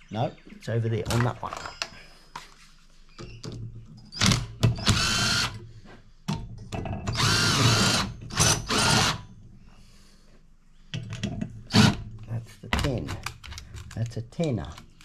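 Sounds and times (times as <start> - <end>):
cordless driver motor whine: 7.1 - 9.2.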